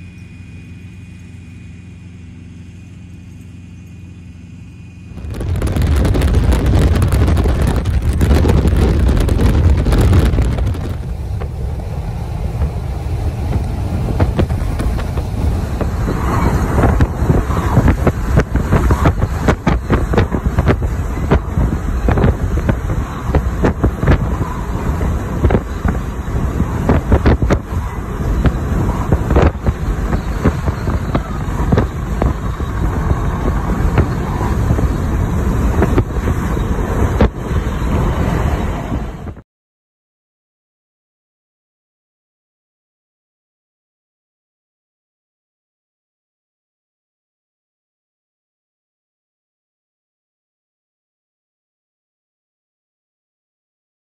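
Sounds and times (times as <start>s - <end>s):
truck wind and road noise: 0.0s - 39.4s
wind buffeting microphone: 5.1s - 39.4s.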